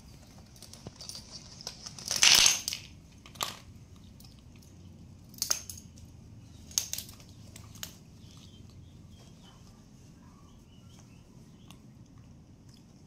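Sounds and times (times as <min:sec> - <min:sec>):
plastic bottles clattering on tiles: 0:01.0 - 0:03.6.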